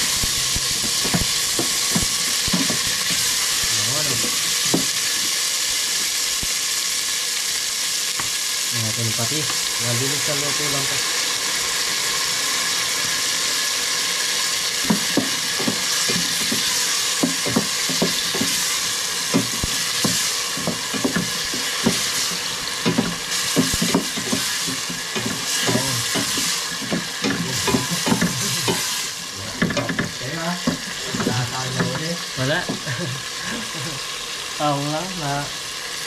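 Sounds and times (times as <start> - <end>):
food sizzling in hot oil: 0.0 - 36.0
utensil scraping a pan: 0.3 - 5.3, 14.8 - 32.9.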